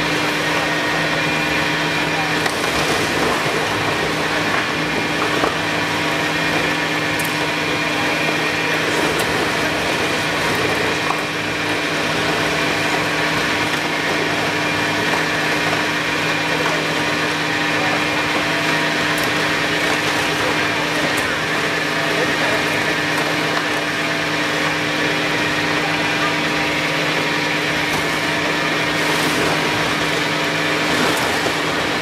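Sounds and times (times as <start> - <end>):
machine drone with hum: 0.0 - 32.0.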